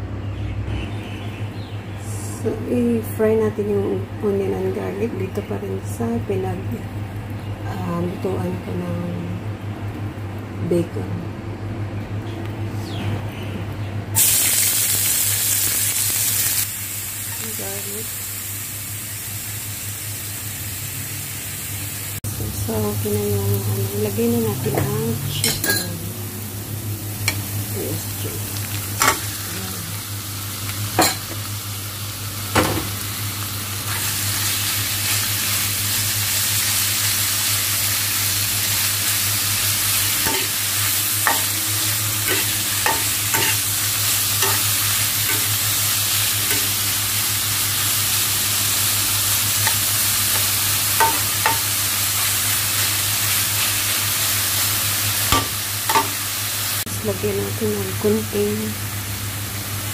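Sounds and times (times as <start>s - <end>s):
food sizzling in frying pan: 14.2s - 59.9s
spatula scraping and knocking pan: 42.2s - 43.7s.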